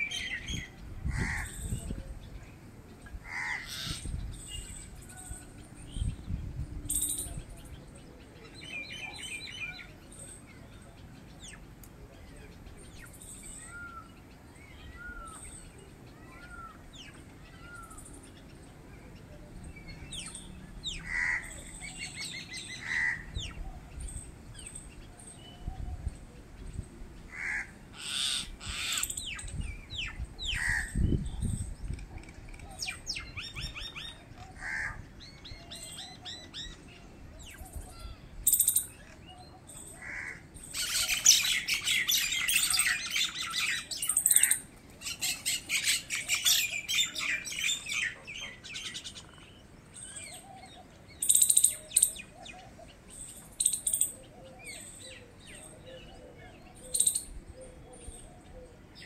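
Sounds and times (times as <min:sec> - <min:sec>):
birds whistling and chattering: 0:00.0 - 0:59.0
loud sharp bird calls: 0:20.0 - 0:23.6, 0:27.2 - 0:31.2, 0:32.1 - 0:58.3.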